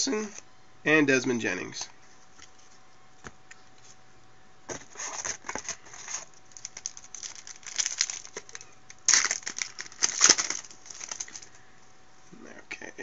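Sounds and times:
foil wrapper crinkling and tearing: 4.9 - 11.6.

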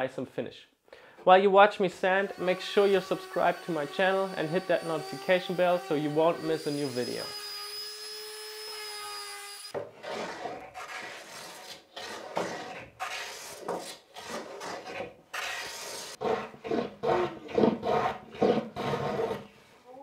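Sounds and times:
orbital sander whine: 2.2 - 9.7
hand plane scraping wood: 9.8 - 19.6.

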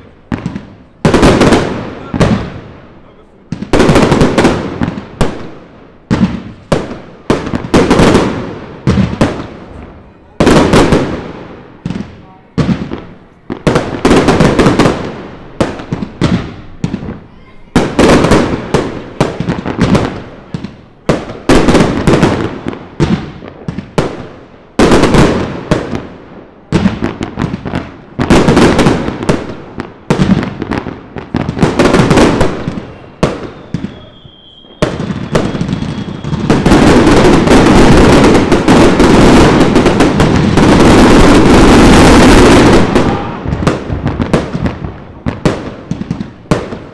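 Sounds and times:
fireworks bangs and crackles: 0.0 - 46.9
firework whistle: 32.4 - 37.8, 41.9 - 43.8.

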